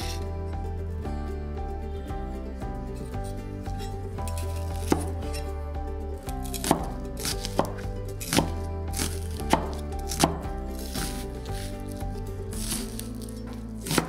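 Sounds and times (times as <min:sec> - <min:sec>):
cleaver chopping onion on board: 0:04.3 - 0:05.2, 0:06.4 - 0:11.7, 0:13.8 - 0:14.0.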